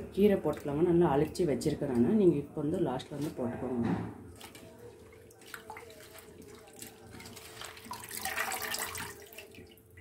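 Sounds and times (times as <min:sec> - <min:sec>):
water bubbling in a pot: 0:05.0 - 0:10.0.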